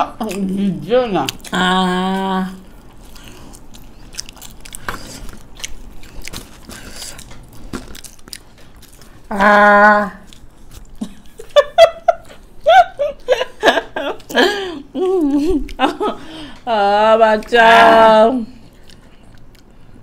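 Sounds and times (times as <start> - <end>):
chewing and crunching: 0.0 - 11.6, 18.5 - 20.0
laughter: 11.0 - 16.2.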